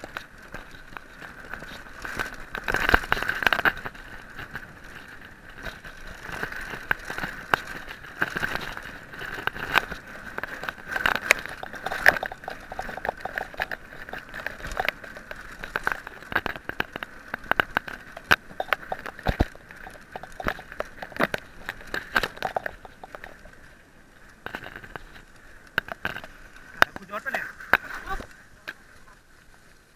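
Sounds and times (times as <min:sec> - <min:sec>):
mountain bike rattling on dirt trail: 0:00.0 - 0:29.9
steady rushing noise: 0:00.0 - 0:29.9
sharp clicks and knocks: 0:05.6 - 0:23.5, 0:24.4 - 0:28.3.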